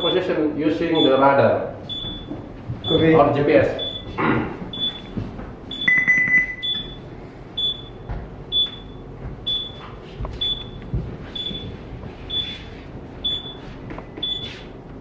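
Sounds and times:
short high alarm beeps: 0.0s - 0.3s, 3.8s - 4.2s, 5.7s - 9.8s, 10.4s - 10.8s, 13.3s - 13.6s
long low beep: 3.8s - 4.2s, 5.7s - 9.8s, 10.4s - 10.8s.

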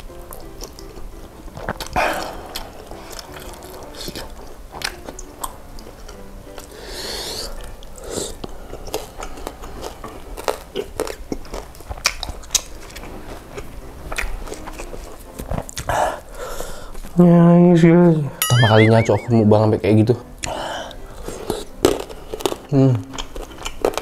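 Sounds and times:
quiet background music: 0.0s - 24.0s
wet chewing mouth sounds: 0.3s - 6.7s, 7.4s - 15.9s, 21.2s - 24.0s.

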